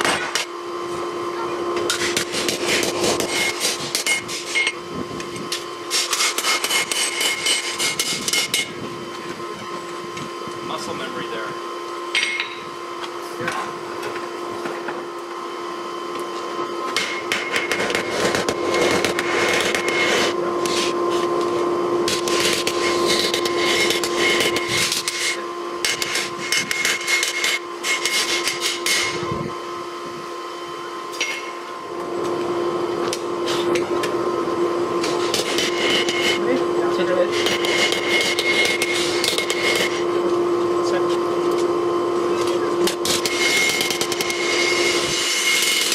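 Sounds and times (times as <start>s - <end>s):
steady hum: 0.0s - 45.9s
hammer striking hot steel: 1.8s - 8.7s, 12.1s - 12.7s, 16.8s - 29.1s, 31.1s - 31.6s, 37.3s - 40.0s, 42.4s - 44.6s, 45.2s - 45.9s.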